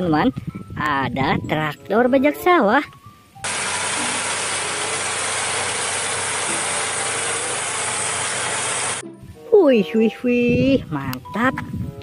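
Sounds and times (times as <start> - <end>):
tractor pulling a plough: 3.4 - 9.0.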